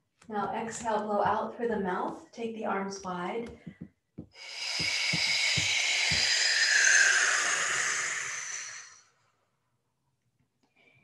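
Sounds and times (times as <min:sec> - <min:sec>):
woman exhaling forcefully: 0:04.4 - 0:09.1.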